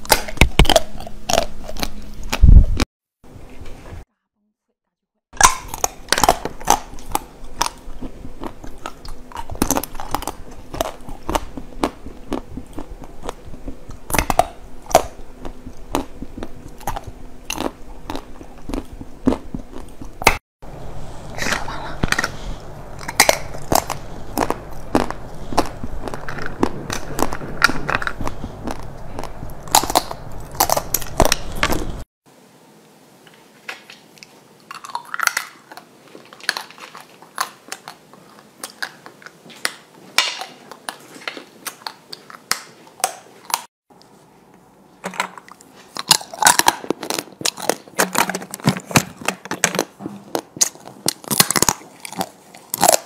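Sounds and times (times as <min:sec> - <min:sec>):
crunching hard sweets: 0:00.0 - 0:02.9, 0:05.4 - 0:32.1, 0:45.4 - 0:53.0
low hum: 0:05.7 - 0:32.1.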